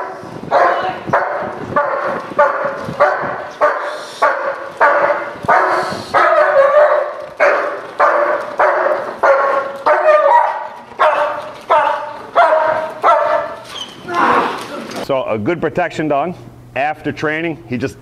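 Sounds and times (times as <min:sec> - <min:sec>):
dog barking: 0:00.0 - 0:13.7.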